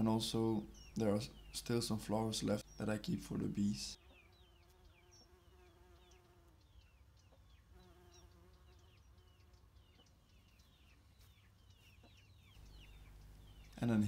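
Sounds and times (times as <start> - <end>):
bumblebee buzzing: 4.0 - 6.7, 7.7 - 9.5.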